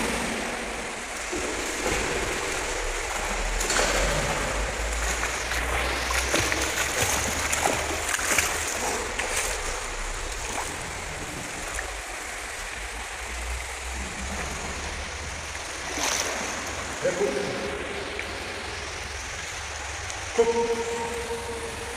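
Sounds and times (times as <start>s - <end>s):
swimmer splashing in pool water: 0.0s - 12.2s.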